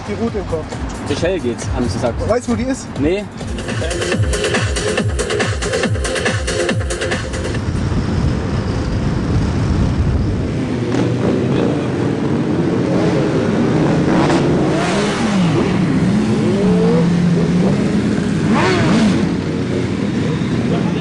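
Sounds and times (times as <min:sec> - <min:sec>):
motorcycle engines idling and revving: 0:00.0 - 0:21.0.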